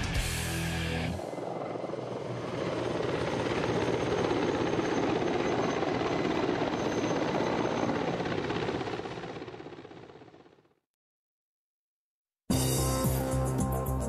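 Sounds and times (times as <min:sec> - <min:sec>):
helicopter flying past: 0:00.2 - 0:10.8.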